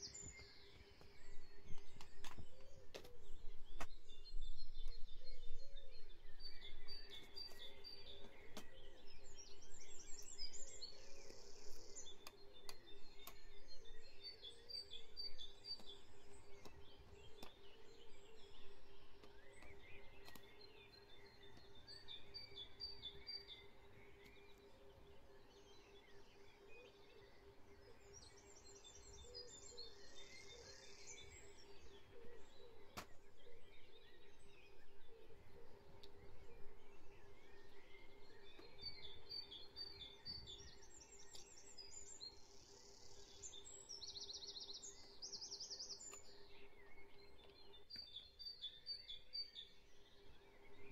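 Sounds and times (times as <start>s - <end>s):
songbirds chirping and trilling: 0.0s - 50.9s
faint clicks: 11.1s - 13.6s, 15.6s - 18.6s, 19.2s - 20.6s, 45.9s - 46.4s.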